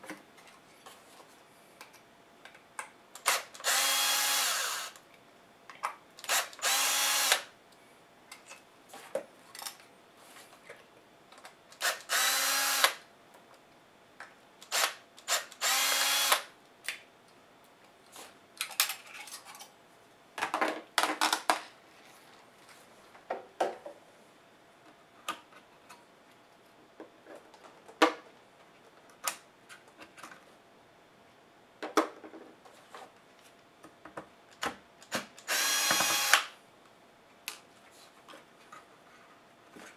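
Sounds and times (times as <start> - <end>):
electric screwdriver running: 3.2 - 5.0, 6.3 - 7.5, 11.8 - 13.0, 14.7 - 16.5, 35.4 - 36.5.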